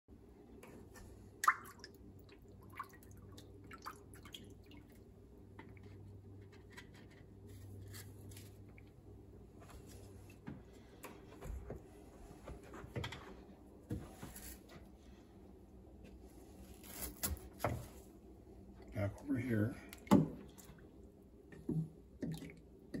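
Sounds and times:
water dripping in metal sink: 0:01.4 - 0:05.0.

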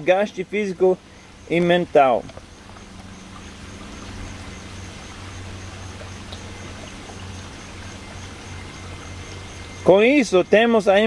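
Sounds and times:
low steady hum: 0:00.0 - 0:11.0
running water rushing: 0:00.0 - 0:11.0.

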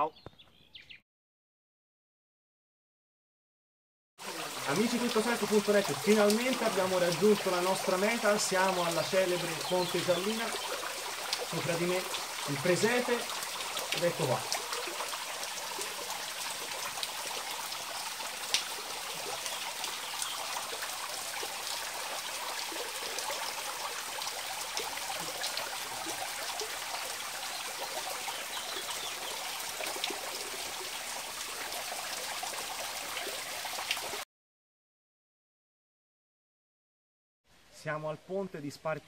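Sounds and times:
water trickling into a pool: 0:04.2 - 0:34.2.

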